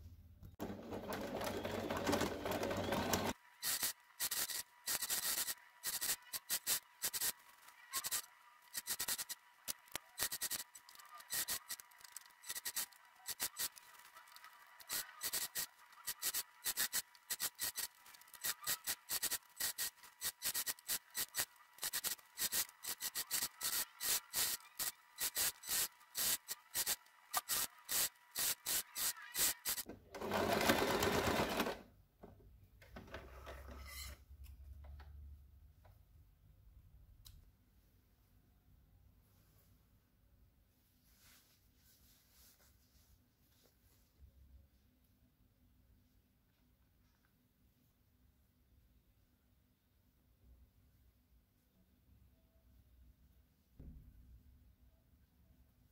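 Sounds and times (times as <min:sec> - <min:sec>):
sewing machine stitching: 0:00.6 - 0:31.9.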